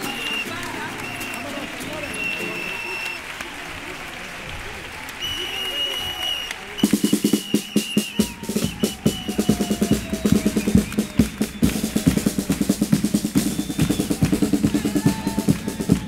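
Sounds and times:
snare drum beat: 6.1s - 16.0s
bass drum beat: 6.8s - 16.0s.

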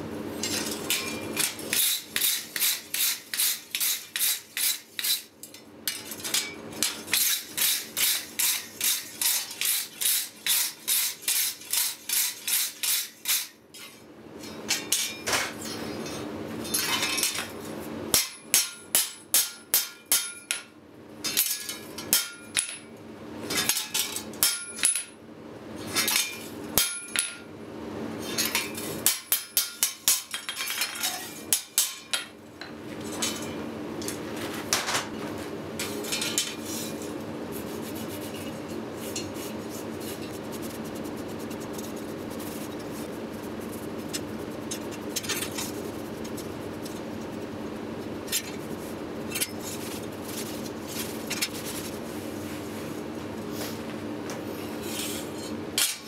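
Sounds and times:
hammer striking steel on anvil: 18.1s - 20.7s, 21.3s - 22.9s, 23.6s - 25.2s, 26.1s - 27.4s, 28.4s - 30.6s, 31.5s - 32.3s.

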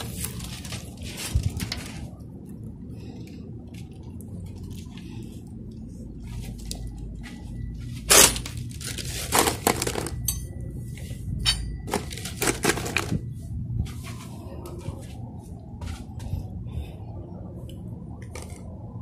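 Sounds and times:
solar panel clinking and knocking: 11.4s - 13.3s.

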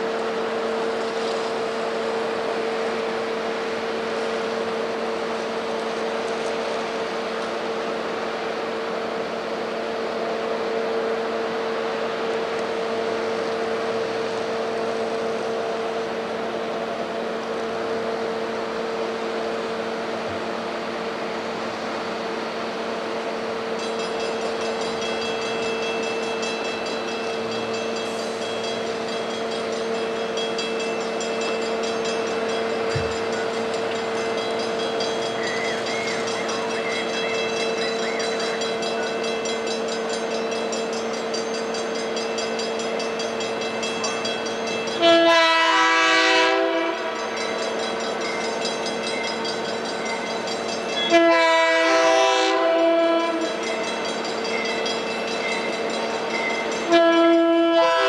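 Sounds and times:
distant crossing bell ringing: 23.7s - 45.2s, 47.0s - 51.4s, 53.3s - 57.4s.

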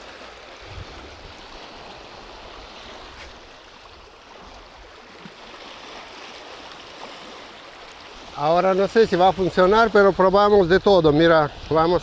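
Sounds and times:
river water washing: 0.0s - 12.0s.

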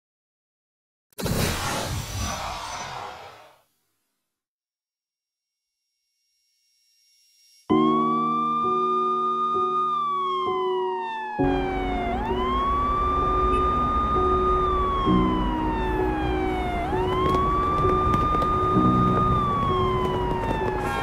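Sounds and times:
police siren wailing: 7.7s - 21.0s
slow sad piano music: 7.7s - 21.0s.

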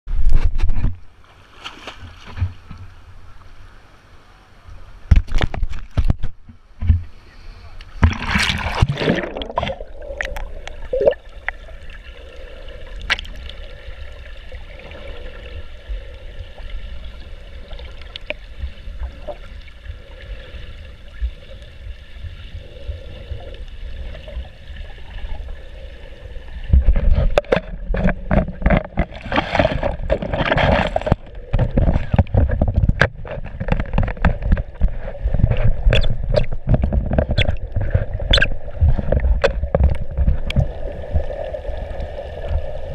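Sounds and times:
muffled underwater wash: 0.1s - 42.9s
splash: 1.3s - 2.7s, 8.0s - 11.3s.

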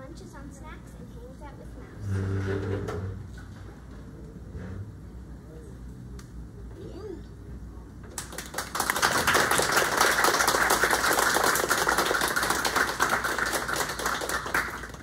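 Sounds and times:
audience applauding: 8.2s - 15.0s.

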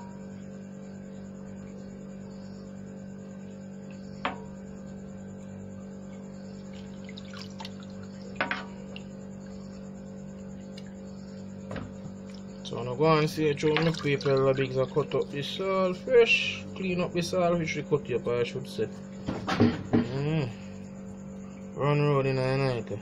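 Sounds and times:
low hum: 0.0s - 23.0s
water splashes and drips: 6.6s - 9.1s, 13.6s - 15.3s.

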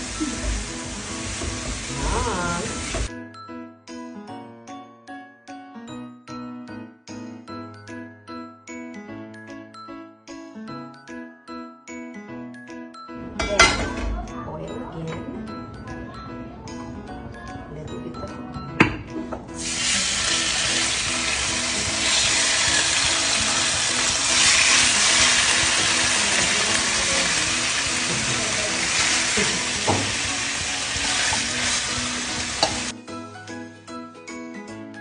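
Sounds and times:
pork sizzling in a frying pan: 0.0s - 3.1s, 19.5s - 32.9s.

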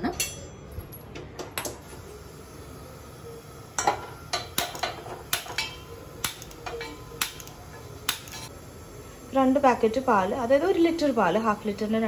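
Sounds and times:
metallic ring of steel pot: 0.0s - 0.7s.

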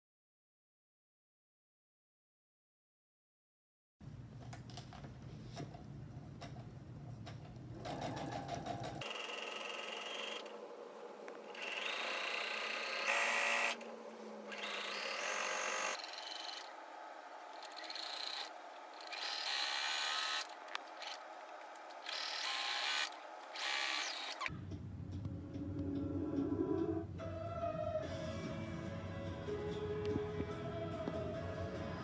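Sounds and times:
sewing machine stitching: 17.6s - 21.2s, 22.0s - 24.5s.

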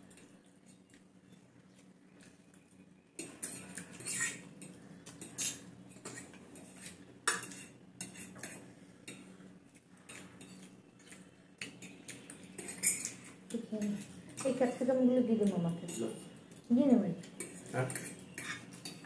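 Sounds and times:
forks clinking on plates: 10.1s - 14.6s, 17.3s - 19.0s.

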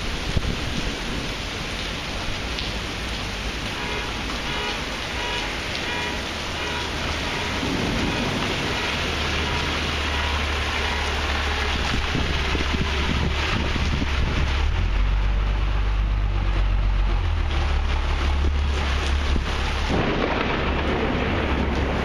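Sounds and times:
heavy rain on pavement and cars: 0.0s - 22.0s
low rumble: 7.6s - 22.0s.

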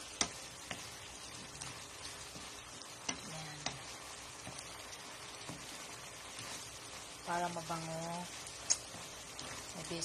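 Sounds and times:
sauce sizzling in a pan: 0.0s - 10.0s
utensil clicking against pan: 0.1s - 0.9s, 1.6s - 4.8s.

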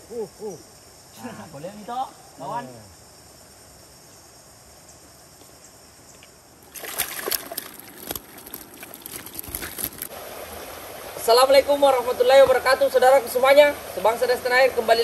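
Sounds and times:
faint steady hiss: 0.0s - 15.0s
river water splashing: 6.6s - 15.0s.

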